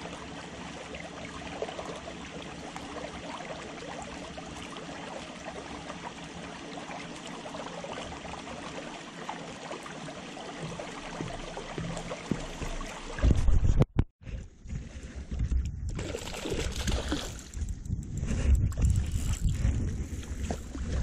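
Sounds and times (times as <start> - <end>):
water lapping against concrete: 0.0 - 13.3, 16.0 - 17.6
thump and rustle near microphone: 13.2 - 13.9.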